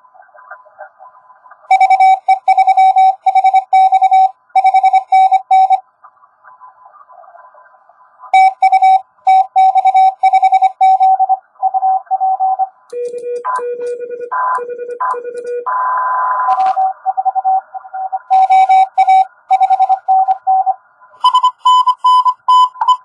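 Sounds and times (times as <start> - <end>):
morse code tones: 1.7 - 5.8, 8.4 - 23.0
radio band hiss: 6.0 - 8.4.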